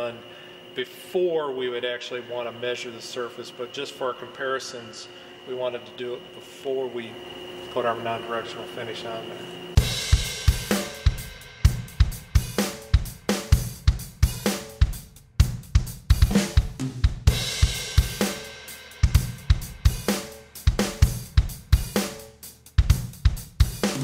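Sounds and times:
drum kit beat: 0:09.8 - 0:24.0.

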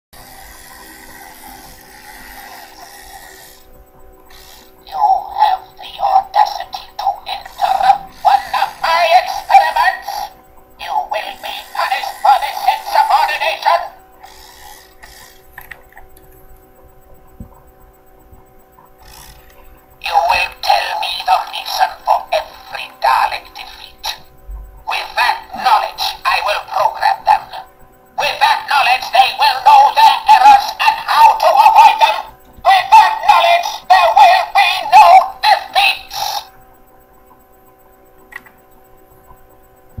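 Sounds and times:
faint electronic hum: 0:00.2 - 0:40.0
toy speaking in distorted voice: 0:04.4 - 0:15.2, 0:19.0 - 0:24.3, 0:24.9 - 0:36.6
small click: 0:38.3 - 0:38.8.

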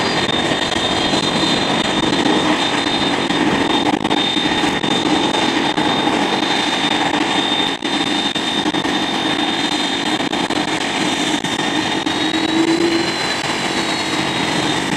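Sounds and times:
jet engines running: 0:00.0 - 0:14.9
thin high tone: 0:12.1 - 0:14.2.

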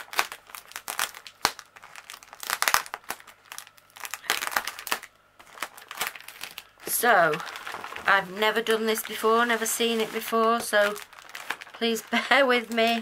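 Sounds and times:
plastic bags crinkling: 0:00.0 - 0:13.0.

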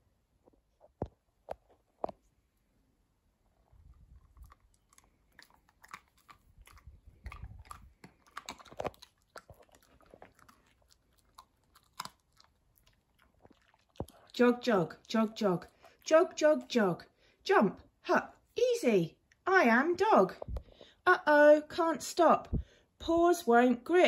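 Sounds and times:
dog chewing and crunching treat: 0:03.5 - 0:16.8.

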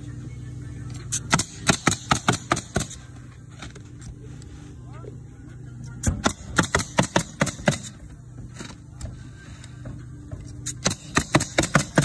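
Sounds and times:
nail gun firing into shingles: 0:01.1 - 0:03.0, 0:06.0 - 0:08.0, 0:10.6 - 0:12.0.

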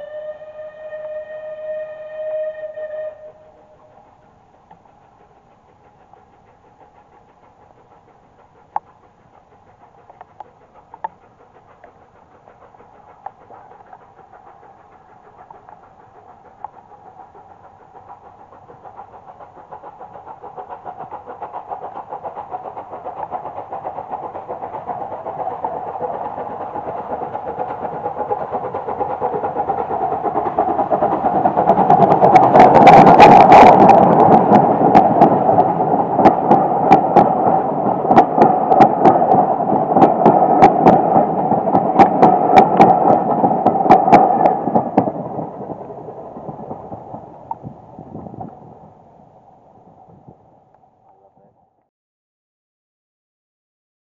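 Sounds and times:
steam locomotive exhaust beats: 0:00.0 - 0:51.8.

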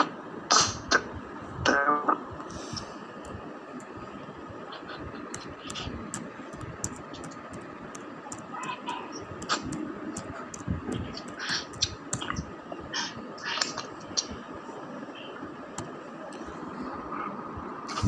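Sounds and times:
laptop keys clicking: 0:05.3 - 0:12.4.

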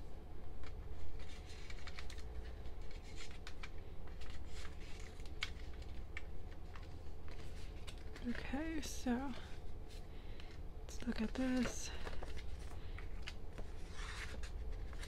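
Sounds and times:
paper scraping: 0:13.6 - 0:15.0.

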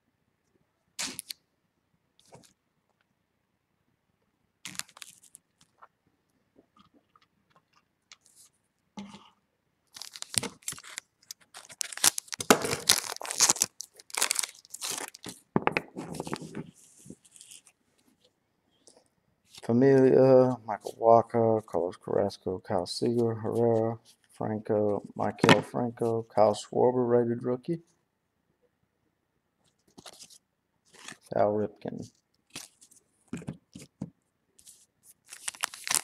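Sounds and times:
card wrappers crinkling: 0:04.7 - 0:05.8, 0:09.9 - 0:17.7, 0:29.9 - 0:31.3, 0:32.5 - 0:33.9, 0:34.6 - 0:36.0.

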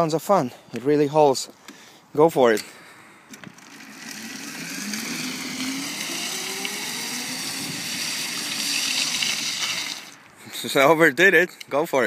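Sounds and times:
electric motor whining: 0:03.4 - 0:10.3
high hiss: 0:04.1 - 0:10.3.

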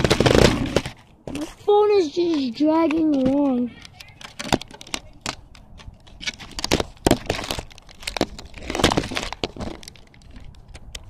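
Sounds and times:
rc car scraping over pavement: 0:00.0 - 0:04.4.

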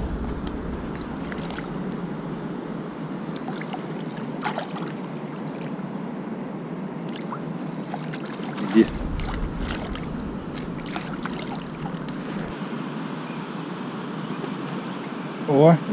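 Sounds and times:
short splash: 0:00.0 - 0:05.7, 0:07.1 - 0:12.6
river water flowing: 0:00.0 - 0:06.3, 0:06.9 - 0:12.6.

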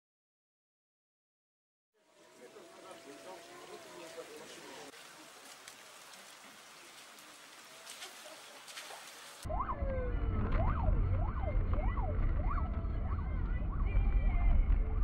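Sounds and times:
emergency vehicle siren wailing: 0:02.0 - 0:04.9, 0:09.4 - 0:15.0.

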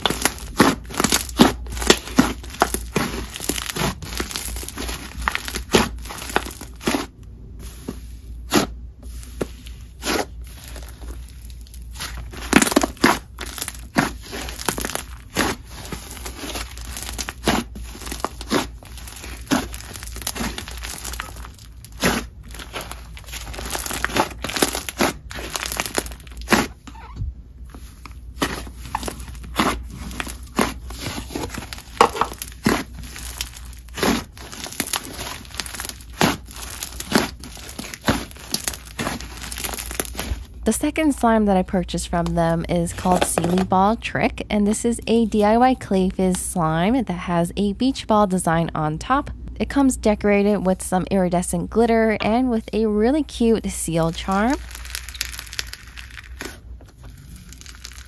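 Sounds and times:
slime popping and crackling: 0:00.0 - 0:07.2, 0:09.4 - 0:26.8, 0:27.8 - 0:40.7, 0:42.2 - 0:43.8, 0:54.0 - 0:58.0
slime squeezed by hand: 0:54.5 - 0:58.0.

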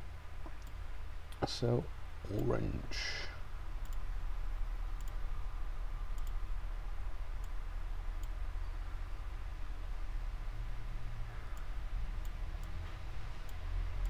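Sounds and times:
steady low hum: 0:00.0 - 0:14.0
computer mouse clicking: 0:03.8 - 0:04.0, 0:05.0 - 0:05.2, 0:06.1 - 0:06.4.

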